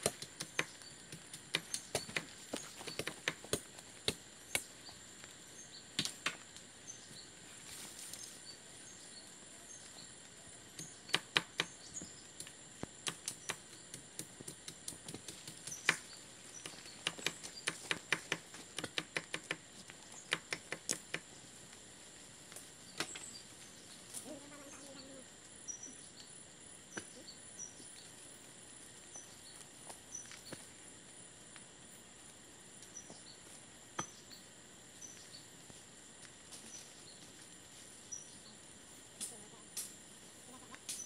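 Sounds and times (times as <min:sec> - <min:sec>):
sharp knocks and clicks: 0:13.0 - 0:19.6
high-pitched insect buzz: 0:23.2 - 0:26.3.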